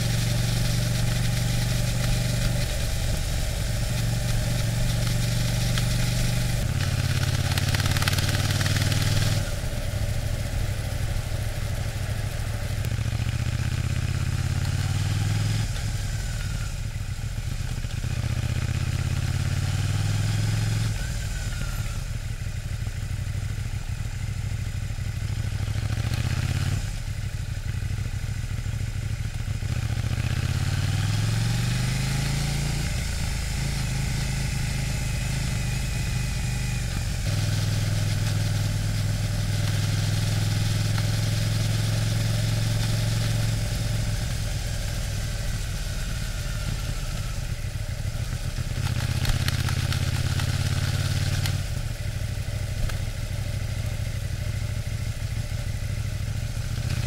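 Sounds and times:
motorcycle engine revving: 0.0s - 57.0s
wind or road noise hiss: 0.0s - 57.0s.

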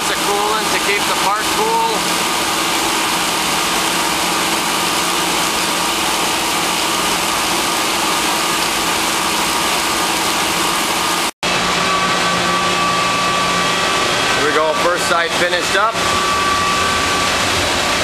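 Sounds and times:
machine hum with high whine: 0.0s - 18.0s.

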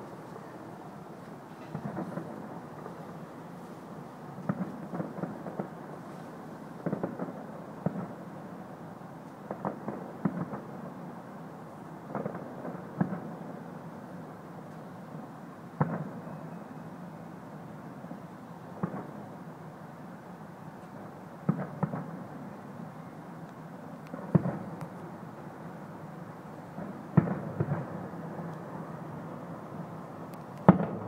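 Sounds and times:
distant fireworks booms and pops: 1.7s - 3.0s, 4.4s - 6.0s, 6.8s - 8.2s, 9.4s - 10.9s, 12.1s - 13.6s, 15.8s - 16.3s, 18.8s - 19.2s, 21.4s - 22.2s, 24.1s - 25.0s, 26.7s - 28.9s, 30.6s - 31.0s.

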